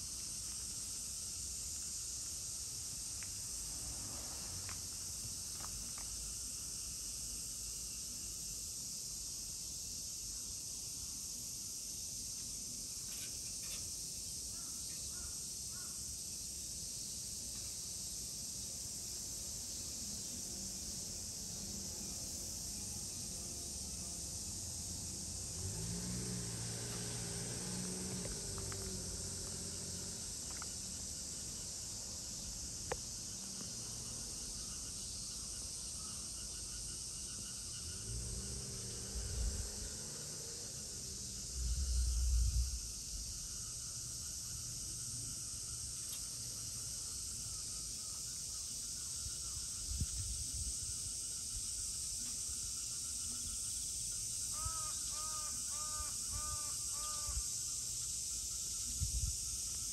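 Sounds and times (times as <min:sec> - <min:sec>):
high-pitched hiss: 0:00.0 - 0:59.9
high-pitched insect drone: 0:19.7 - 0:59.9
low hum: 0:40.9 - 0:44.0
crow cawing: 0:54.6 - 0:57.4.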